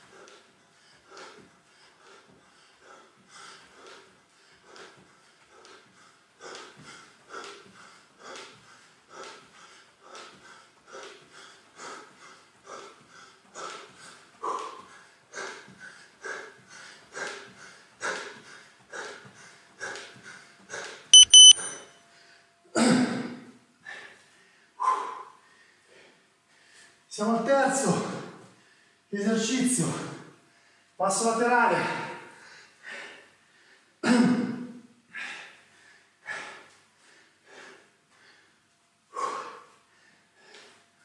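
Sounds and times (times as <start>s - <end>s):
man breathing heavily: 0.0s - 21.1s, 23.8s - 27.1s, 31.8s - 34.0s, 35.0s - 41.0s
short high beeps: 21.2s - 21.8s.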